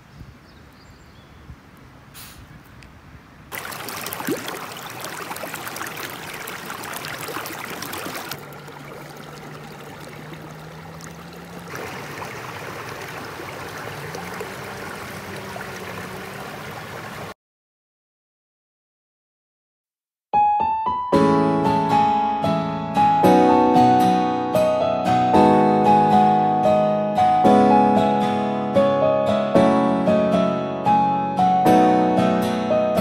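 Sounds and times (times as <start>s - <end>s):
creek water rushing: 3.5s - 17.4s.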